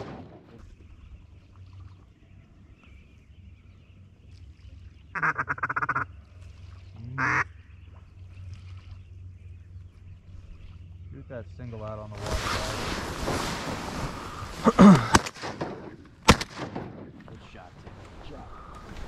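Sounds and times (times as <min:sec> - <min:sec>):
duck call quacks: 0:05.2 - 0:06.0, 0:07.2 - 0:07.5.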